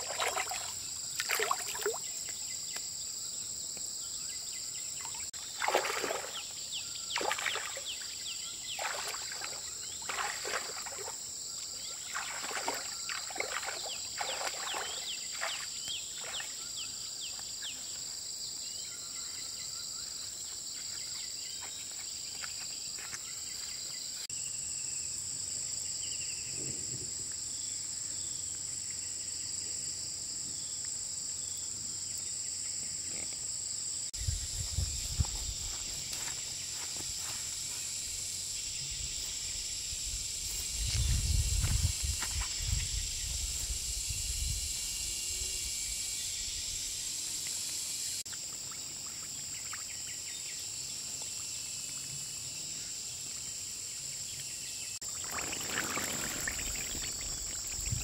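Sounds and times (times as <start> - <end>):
feet splashing through water: 0.0 - 2.1, 5.4 - 8.1, 8.7 - 11.2, 11.8 - 16.6, 55.1 - 58.0
insect pulsing chirp: 0.0 - 58.0
insects chirring: 0.0 - 58.0.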